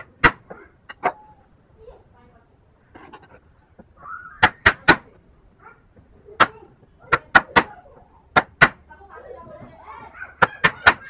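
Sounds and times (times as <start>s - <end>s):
chisel struck into wood: 8.3s - 8.8s.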